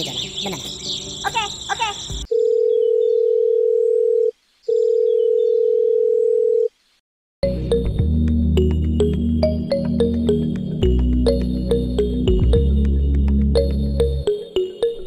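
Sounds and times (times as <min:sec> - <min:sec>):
telephone line tone: 0:02.3 - 0:06.7
music: 0:07.4 - 0:15.0.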